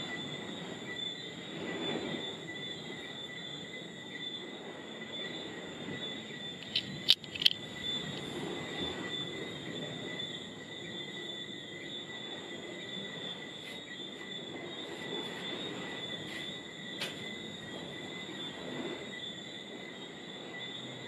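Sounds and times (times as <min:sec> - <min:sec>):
crickets trilling: 0:00.0 - 0:21.0
sharp clicks: 0:06.6 - 0:07.6.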